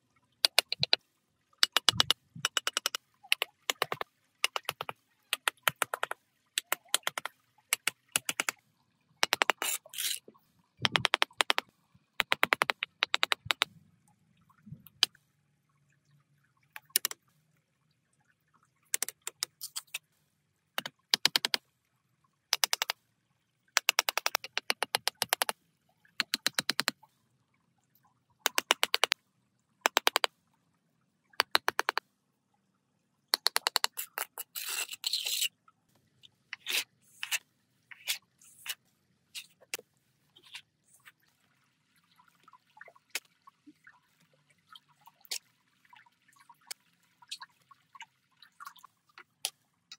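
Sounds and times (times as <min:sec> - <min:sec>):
rapid sharp clicking and scraping: 0:01.6 - 0:08.6, 0:09.2 - 0:10.2, 0:22.5 - 0:23.0, 0:23.8 - 0:25.6, 0:29.9 - 0:30.3.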